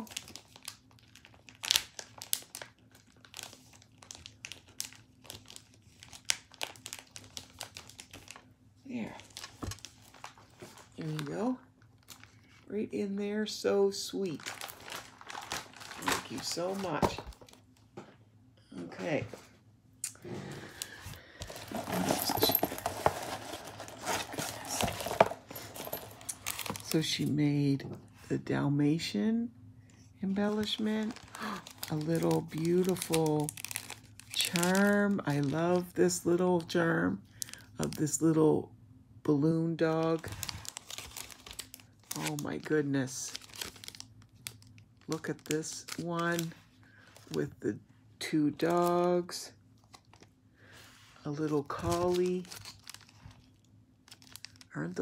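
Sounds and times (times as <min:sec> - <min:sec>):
packaging rustling: 0:00.0 - 0:08.5, 0:09.2 - 0:12.6, 0:14.3 - 0:17.8, 0:20.4 - 0:27.0, 0:30.4 - 0:35.6, 0:40.0 - 0:42.5, 0:43.2 - 0:47.4, 0:51.6 - 0:54.7
plastic page crinkling: 0:00.0 - 0:08.5, 0:09.1 - 0:12.7, 0:14.1 - 0:17.8, 0:20.7 - 0:27.1, 0:30.3 - 0:35.9, 0:39.8 - 0:47.6, 0:51.3 - 0:55.0.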